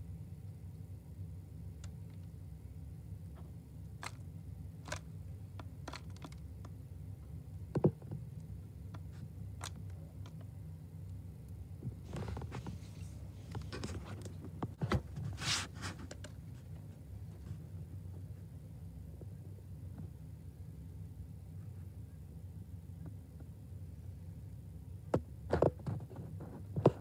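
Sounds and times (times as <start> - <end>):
steady low hum: 0.0 - 27.0
bird pecking seeds in plastic feeder: 3.9 - 4.2, 4.8 - 6.8.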